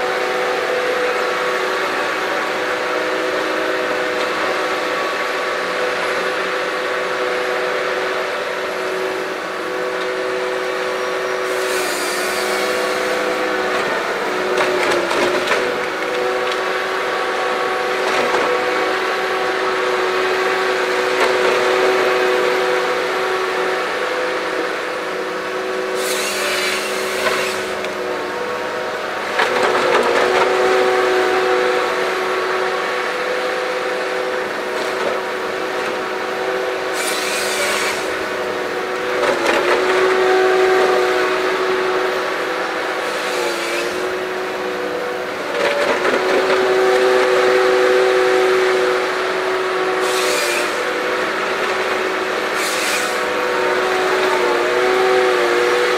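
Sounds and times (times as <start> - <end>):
diesel engine under load: 0.0 - 55.9.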